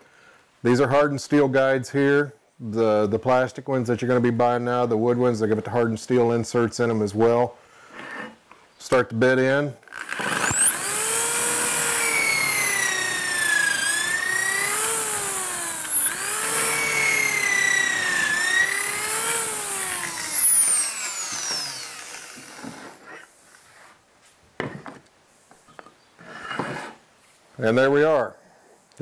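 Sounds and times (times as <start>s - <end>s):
electric drill whining: 9.9s - 23.1s.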